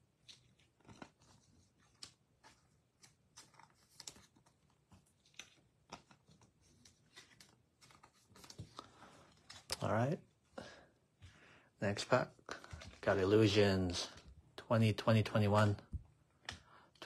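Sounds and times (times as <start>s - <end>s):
cards and packs rustling: 0.0s - 10.2s, 12.0s - 14.4s.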